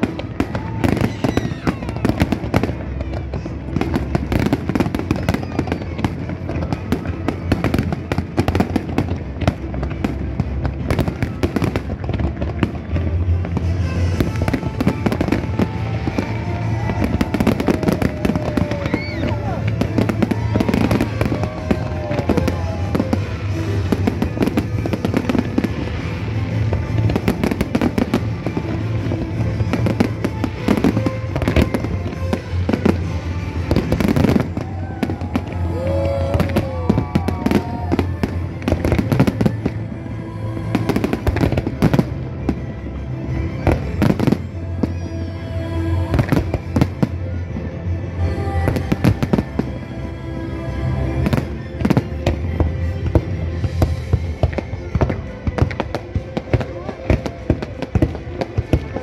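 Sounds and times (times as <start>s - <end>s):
fireworks bangs and crackles: 0.0s - 59.0s
music playing: 0.0s - 59.0s.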